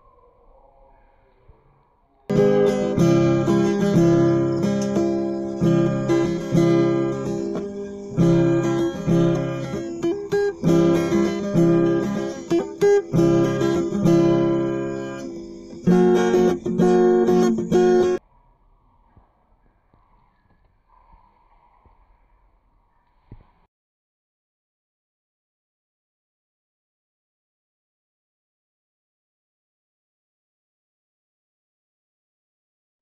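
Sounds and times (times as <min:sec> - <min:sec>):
strummed acoustic guitar: 0:02.3 - 0:18.2.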